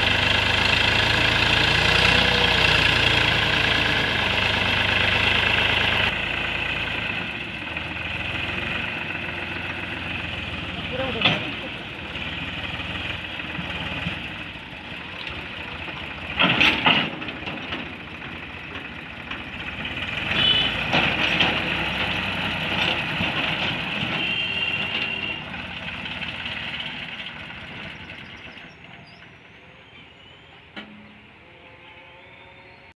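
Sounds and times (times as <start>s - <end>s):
tractor diesel engine under load: 0.0s - 31.4s.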